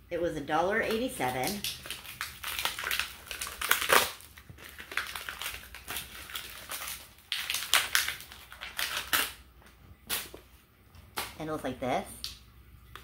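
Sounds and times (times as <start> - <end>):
packaging tearing and crinkling: 0.9 - 10.5.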